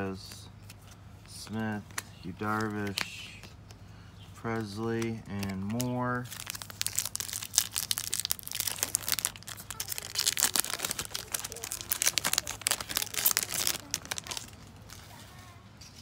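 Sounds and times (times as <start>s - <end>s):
foil wrapper tearing and crinkling: 5.3s - 15.1s.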